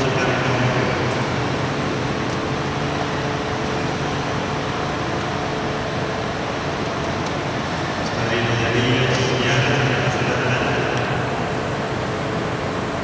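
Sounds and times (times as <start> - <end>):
room noise hiss: 0.0 - 13.0.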